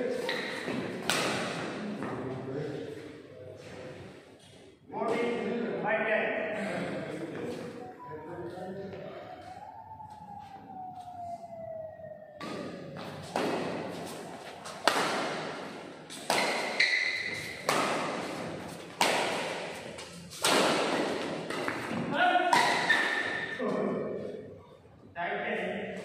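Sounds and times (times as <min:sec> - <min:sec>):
racket hitting shuttlecock: 0:00.2 - 0:01.8, 0:12.4 - 0:23.6.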